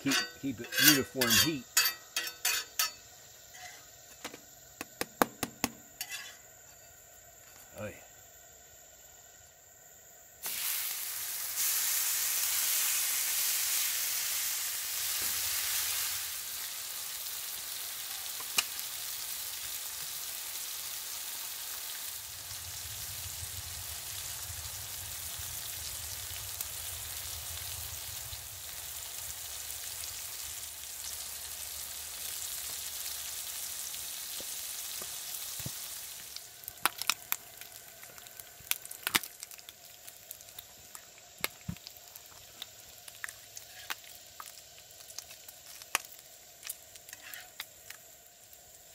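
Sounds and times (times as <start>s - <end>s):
bacon sizzling on a griddle: 0.0s - 48.9s
fat popping and crackling: 4.2s - 5.9s, 18.3s - 18.9s, 35.0s - 48.0s.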